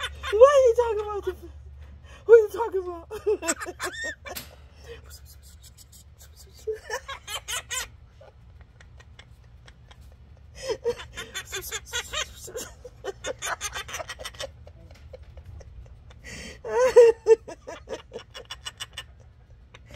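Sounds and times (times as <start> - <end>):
woman giggling: 2.3 - 19.9.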